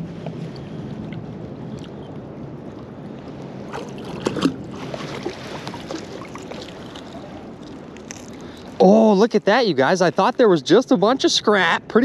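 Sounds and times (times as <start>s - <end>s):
water sloshing: 3.6s - 8.8s
water splashing: 3.6s - 9.2s.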